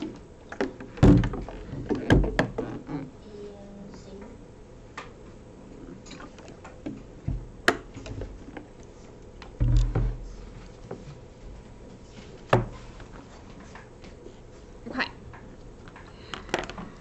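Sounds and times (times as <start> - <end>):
heavy low thump: 9.6 - 10.3.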